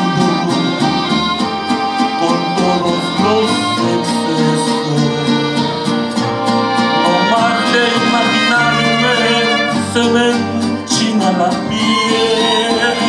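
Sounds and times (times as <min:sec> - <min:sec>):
trumpets: 0:00.0 - 0:10.3
strummed guitars: 0:00.0 - 0:13.0
violins: 0:00.0 - 0:13.0.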